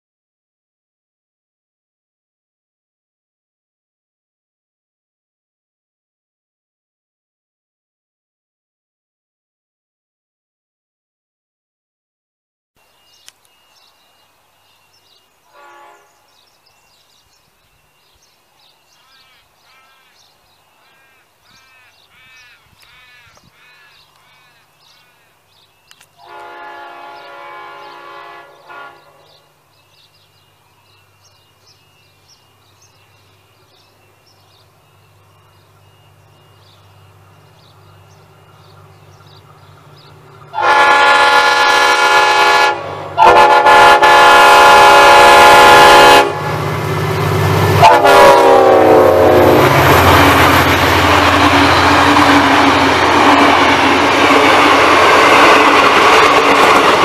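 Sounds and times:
birds chirping: 0:12.8 - 0:41.0
locomotive air horn blasts: 0:15.5 - 0:16.3, 0:26.2 - 0:29.4, 0:40.6 - 0:46.7, 0:47.8 - 0:52.8
bird calling repeatedly: 0:18.7 - 0:26.3
locomotive engine running: 0:29.6 - 0:40.6, 0:46.2 - 0:57.0.

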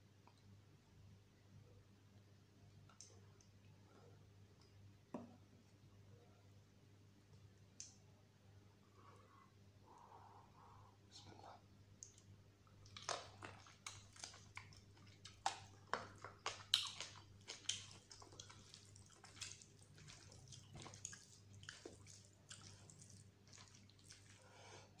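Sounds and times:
wet chewing and lip smacking: 0:11.9 - 0:24.6.

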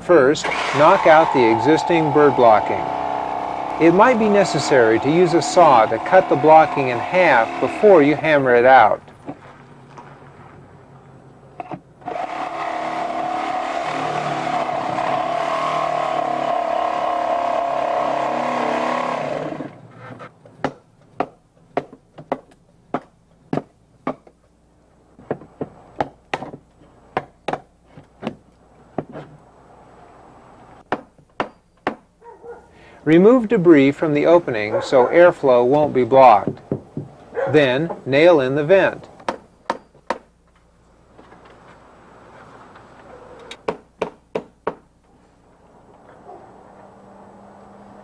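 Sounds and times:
power saw cutting wood: 0:00.0 - 0:09.0, 0:12.0 - 0:20.3.

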